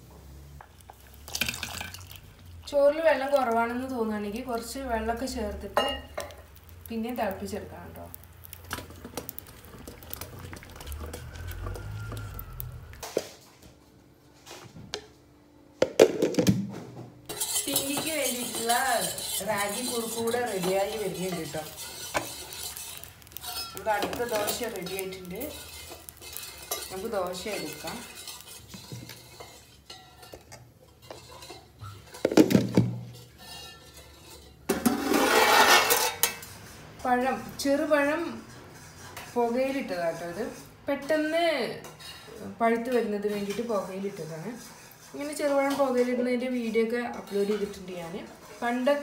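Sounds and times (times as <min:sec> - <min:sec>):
flame and bubbling rumble: 0:04.6 - 0:13.0, 0:19.1 - 0:29.7.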